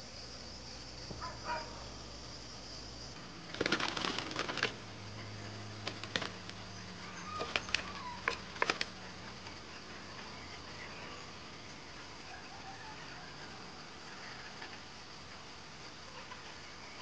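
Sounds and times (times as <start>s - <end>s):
insects buzzing: 0.0s - 17.0s
hens clucking: 3.7s - 10.7s.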